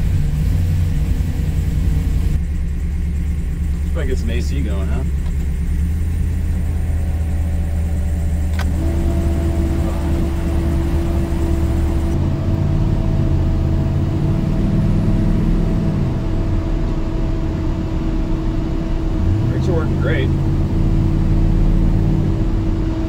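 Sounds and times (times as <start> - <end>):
engine running: 0.0 - 23.0
steady whine: 0.0 - 23.0
click: 8.5 - 8.8.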